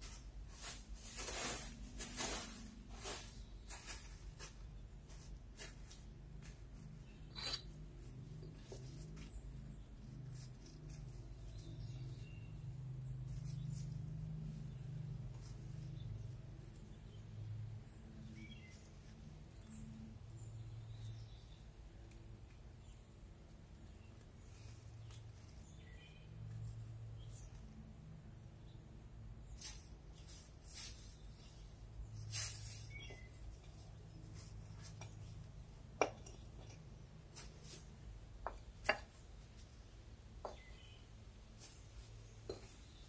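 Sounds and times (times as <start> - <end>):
handling noise on plastic sheeting: 0.0 - 7.3, 29.5 - 35.8, 37.2 - 38.2.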